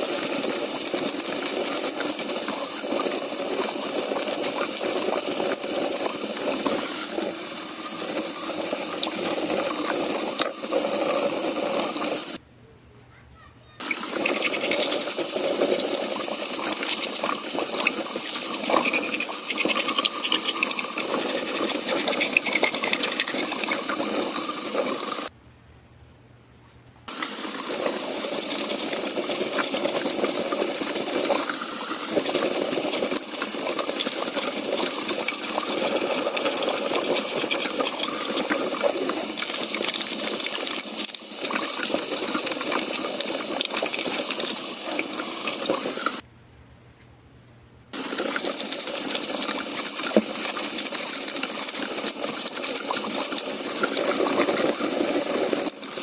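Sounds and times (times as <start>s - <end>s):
faucet water splashing: 0.0s - 12.4s, 13.8s - 25.3s, 27.1s - 46.2s, 48.0s - 56.0s.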